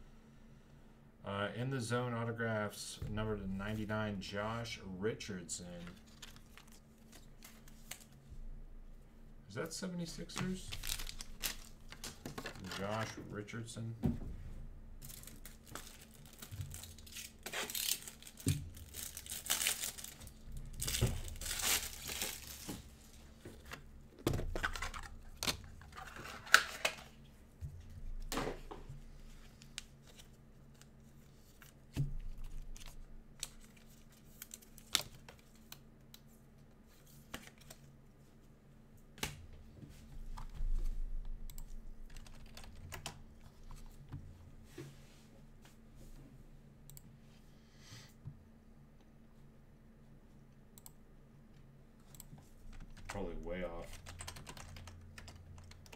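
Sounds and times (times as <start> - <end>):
plastic wrappers crinkling: 10.5 - 13.1, 15.0 - 22.8.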